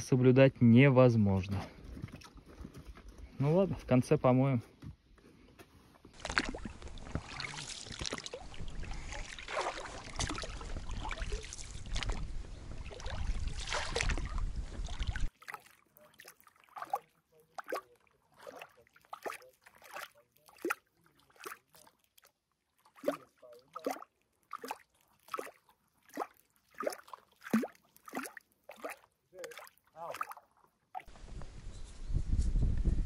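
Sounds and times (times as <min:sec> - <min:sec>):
oars splashing: 0:01.4 - 0:03.3, 0:06.1 - 0:31.3
water lapping: 0:06.1 - 0:31.2.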